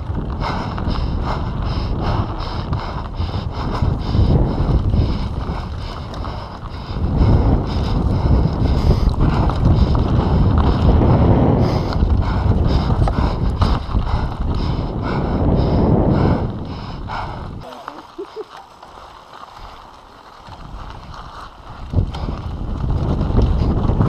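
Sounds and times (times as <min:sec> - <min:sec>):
bike rattling over bumps: 0:00.0 - 0:24.0
tyres rumbling over dirt: 0:00.0 - 0:24.0
wind buffeting microphone: 0:00.0 - 0:24.0.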